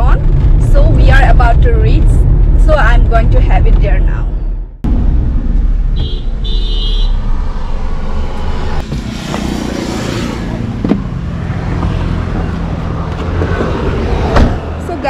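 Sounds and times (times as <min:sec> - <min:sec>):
road traffic hum: 0:00.0 - 0:15.0
motorcycle passing: 0:04.9 - 0:15.0.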